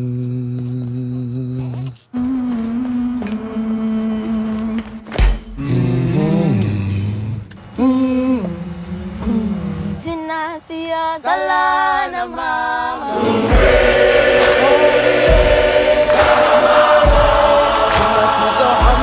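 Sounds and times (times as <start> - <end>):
person singing a chant: 0.0 - 5.0, 5.6 - 19.0
large choir singing: 11.2 - 19.0
deep thuds: 13.5 - 19.0.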